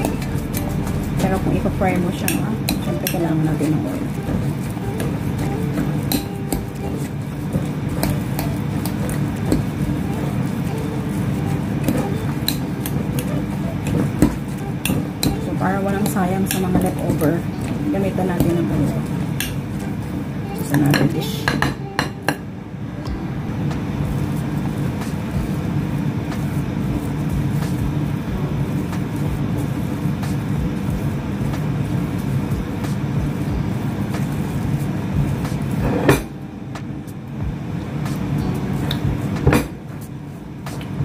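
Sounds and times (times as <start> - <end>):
low hum: 0.0 - 6.9.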